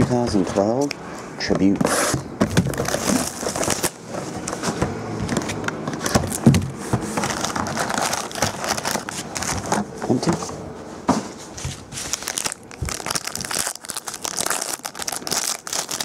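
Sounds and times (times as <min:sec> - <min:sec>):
cardboard rustling and scraping: 0:01.6 - 0:13.6
foil wrappers crinkling: 0:02.6 - 0:04.4, 0:07.1 - 0:10.3, 0:11.6 - 0:16.0.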